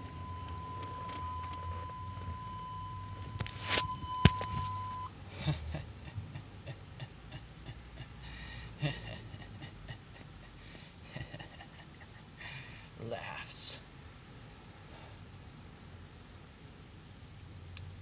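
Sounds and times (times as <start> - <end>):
steady high beep: 0.0 - 5.1
faint breathy hissing: 8.2 - 8.8, 12.4 - 13.0, 14.8 - 15.4.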